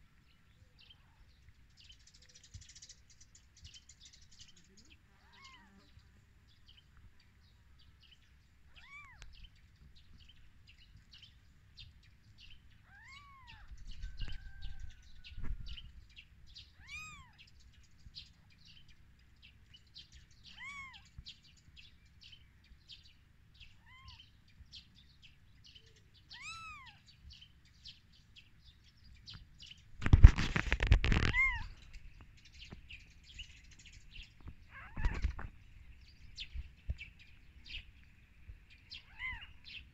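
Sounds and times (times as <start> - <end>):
newborn kittens mewing: 5.2 - 5.8, 8.7 - 9.2, 12.8 - 13.7, 16.8 - 17.4, 20.5 - 21.1, 23.8 - 24.2, 26.3 - 27.0, 31.1 - 31.7, 34.7 - 35.2, 39.0 - 39.6.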